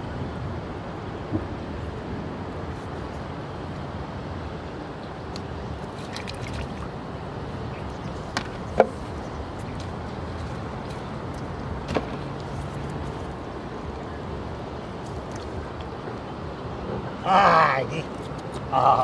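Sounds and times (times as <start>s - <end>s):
low open-air rumble: 0.0s - 19.0s.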